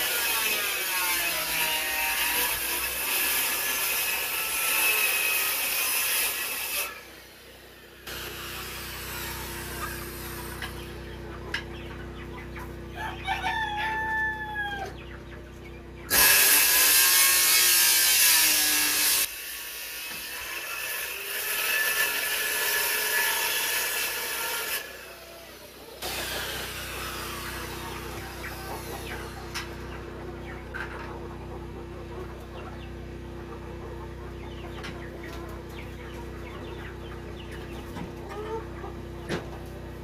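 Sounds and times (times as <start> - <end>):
circular saw cutting plywood: 0.0 - 10.9, 16.1 - 30.0
chickens clucking: 6.2 - 16.2, 24.2 - 40.0
rooster crowing: 12.9 - 15.0.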